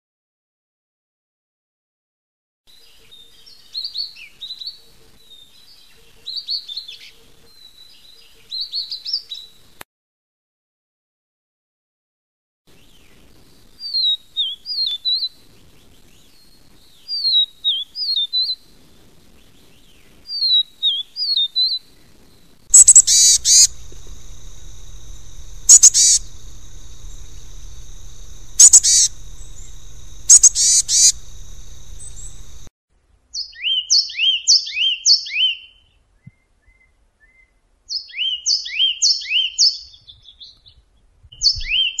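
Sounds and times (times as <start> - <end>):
bird giving sharp calls: 22.7 - 32.7
bird singing falling whistles: 22.7 - 32.7
bird singing two-part notes: 22.7 - 32.7
hiss: 22.7 - 32.7
steady high tone: 22.7 - 32.7.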